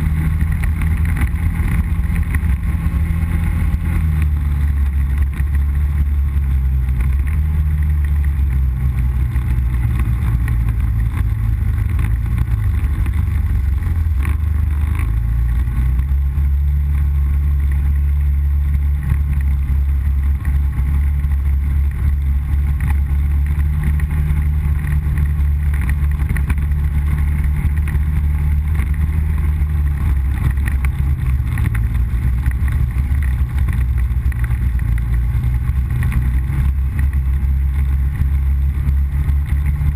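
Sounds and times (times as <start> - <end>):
atv engine drone: 0.0 - 39.9.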